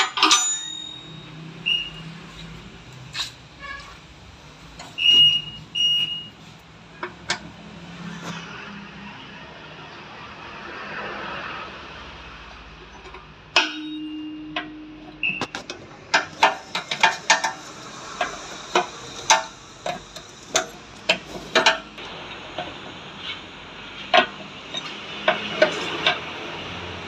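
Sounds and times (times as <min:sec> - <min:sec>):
metal tools clinking: 0:00.0 - 0:02.6.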